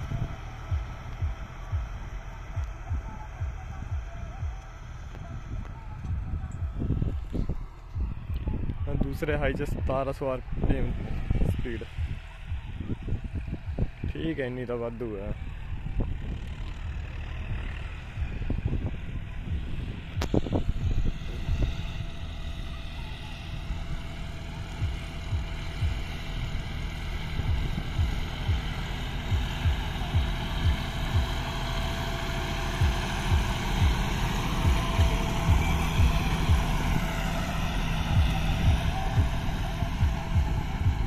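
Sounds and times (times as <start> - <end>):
tractor diesel engine running: 0.0 - 41.0
low thumps: 27.3 - 41.0.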